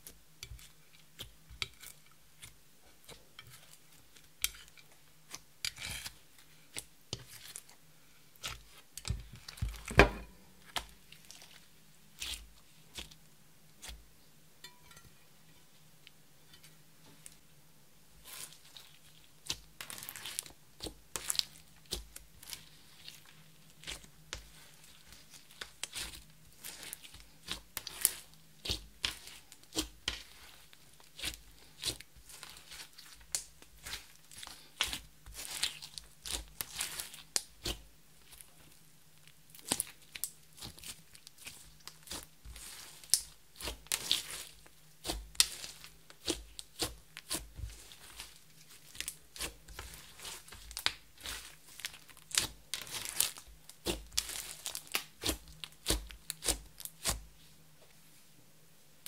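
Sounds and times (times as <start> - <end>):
slime being kneaded: 5.3 - 7.7, 18.2 - 38.5, 39.5 - 57.3.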